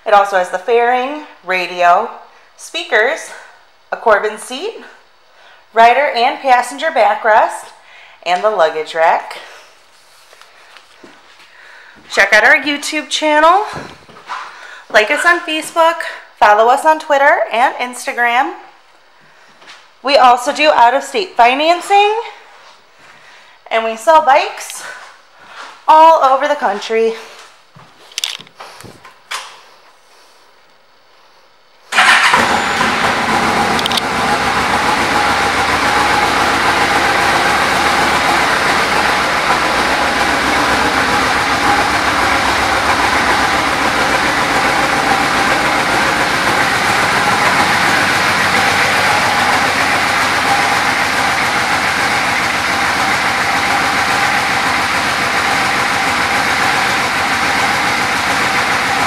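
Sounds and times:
motorcycle engine starting and idling: 31.9s - 59.0s.

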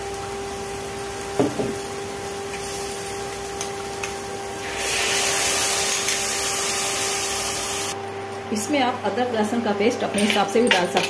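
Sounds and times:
loud sizzle in hot oil: 0.0s - 8.0s
induction cooktop humming: 0.0s - 11.0s.

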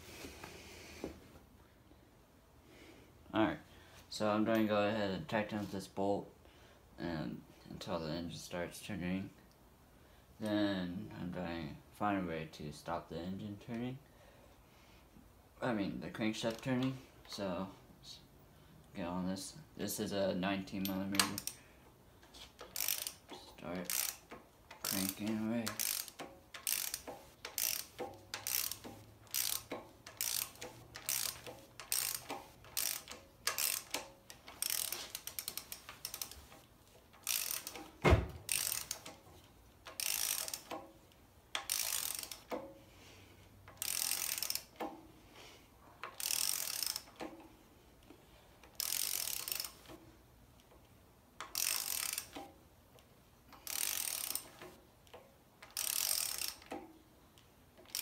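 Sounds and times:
socket ratchet clicking: 20.8s - 21.6s, 22.5s - 42.8s, 43.6s - 45.0s, 46.0s - 47.5s, 48.6s - 50.0s, 51.4s - 52.6s, 53.5s - 57.0s, 57.8s - 58.0s.

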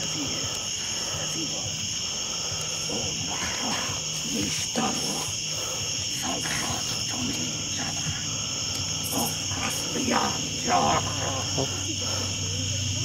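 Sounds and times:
crickets chirring: 0.0s - 13.0s
low voice sounds: 2.8s - 13.0s.

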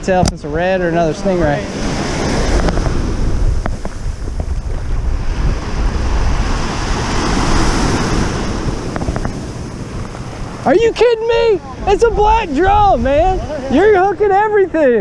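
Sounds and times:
wind buffeting microphone: 0.0s - 15.0s
small waves breaking on sand: 0.7s - 15.0s.

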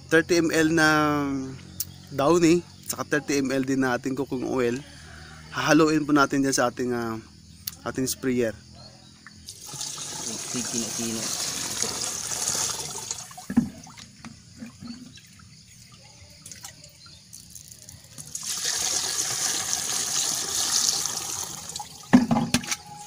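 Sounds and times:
water pouring into tank: 9.5s - 14.1s, 17.4s - 22.8s
knocks on plastic tank: 22.1s - 22.7s.

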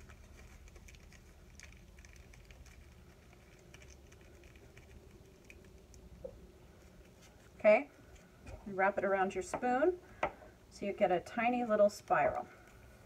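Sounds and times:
aluminum foil crinkling: 0.0s - 7.4s.

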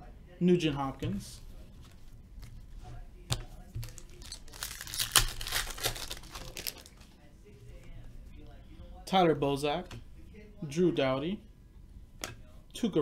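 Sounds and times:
wrapper crinkling and tearing: 3.8s - 7.0s.

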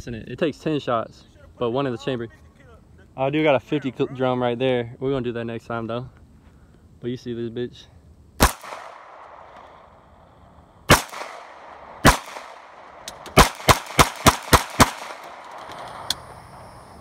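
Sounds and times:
pistol shots with echo: 8.4s - 9.9s, 10.9s - 15.6s.

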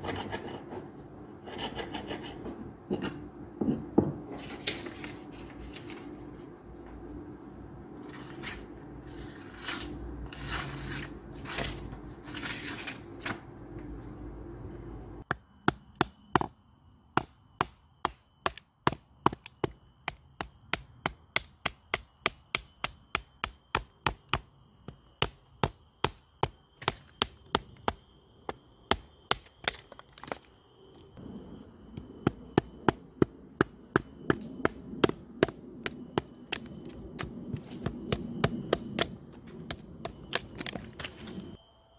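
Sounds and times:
low steady hum: 0.0s - 41.9s
high steady tone: 14.6s - 41.9s.

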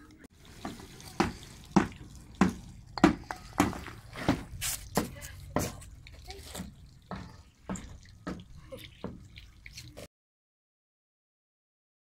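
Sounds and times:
footsteps on brick paving: 0.6s - 9.3s.

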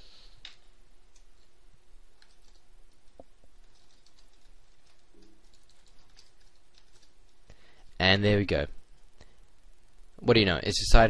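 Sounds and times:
computer keyboard keystrokes: 2.2s - 7.4s.

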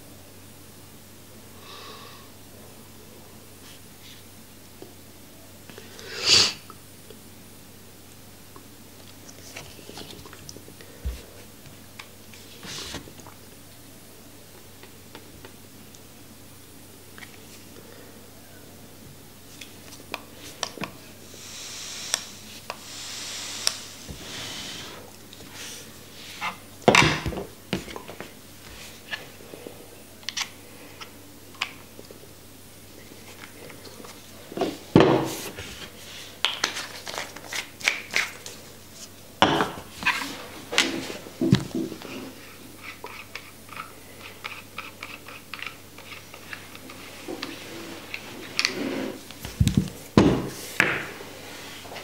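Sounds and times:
soft hiss: 0.1s - 26.8s.

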